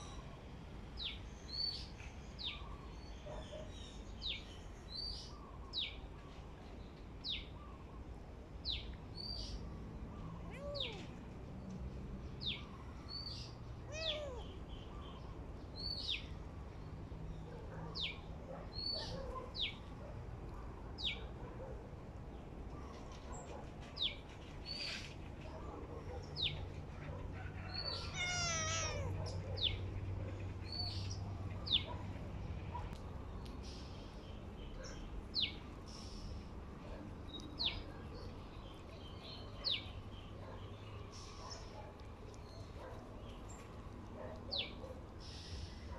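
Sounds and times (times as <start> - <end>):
small bird chirping: 8.6 - 11.3, 12.4 - 16.4, 27.8 - 30.0
kitten mewing: 10.5 - 11.2, 13.9 - 14.6, 27.9 - 29.4.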